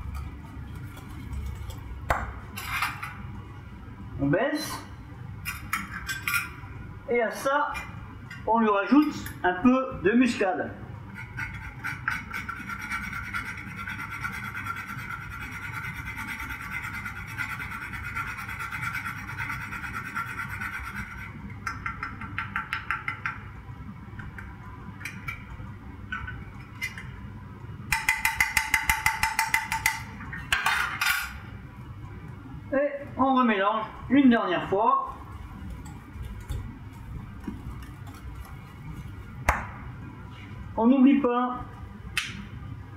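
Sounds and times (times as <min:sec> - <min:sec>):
whisk scraping a saucepan: 0:11.1 - 0:21.4.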